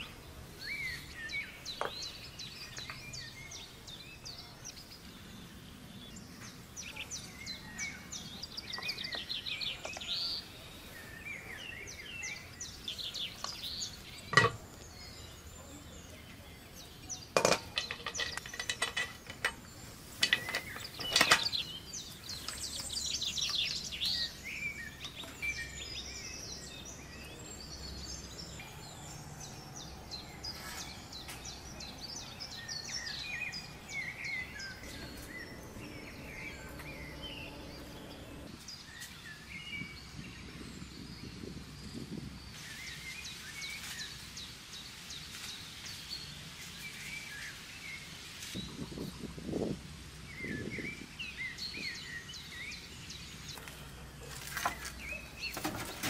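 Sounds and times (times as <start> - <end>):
songbirds chirping and singing: 0.0 - 56.0
cookware clinking: 14.4 - 14.6.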